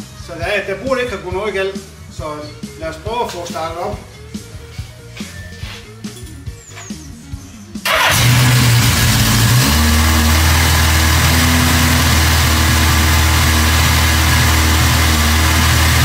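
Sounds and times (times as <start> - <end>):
motorcycle engine starting and idling: 7.8 - 16.0.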